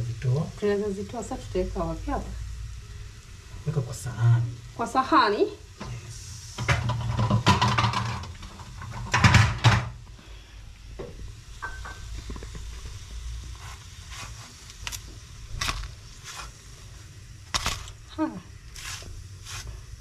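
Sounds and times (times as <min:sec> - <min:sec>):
utensil clattering on griddle pan: 0:06.6 - 0:10.0.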